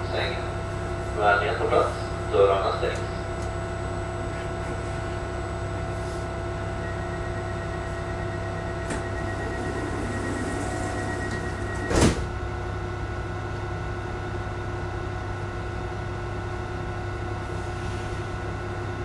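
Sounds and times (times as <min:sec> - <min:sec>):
train electrical hum: 0:00.0 - 0:19.0
train doors shutting thump: 0:08.8 - 0:12.4.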